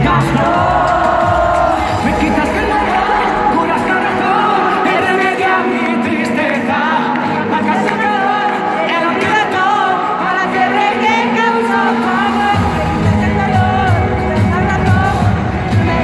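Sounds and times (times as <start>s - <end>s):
crowd singing: 0.0s - 16.0s
live pop concert: 0.0s - 16.0s.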